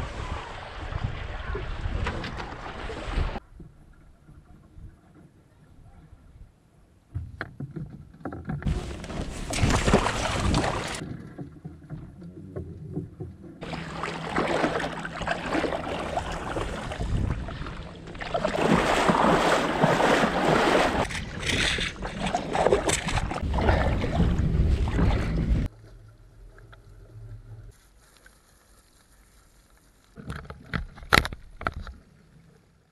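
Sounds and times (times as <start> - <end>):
water along boat hull: 0.0 - 32.9
wind on microphone: 16.0 - 17.9, 18.6 - 25.7.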